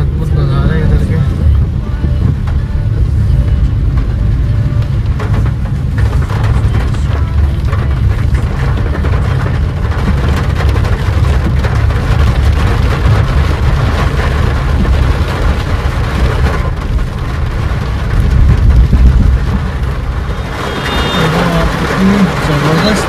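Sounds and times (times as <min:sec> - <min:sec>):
rain on windscreen: 0:00.0 - 0:23.0
road rumble inside car: 0:00.0 - 0:23.0
tyres hissing on wet road: 0:19.4 - 0:23.0.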